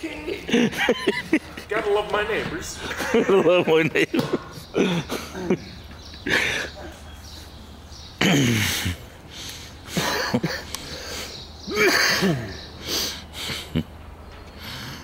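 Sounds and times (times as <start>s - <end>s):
person clearing throat and coughing: 8.2s - 9.0s, 10.0s - 10.7s, 11.7s - 12.6s.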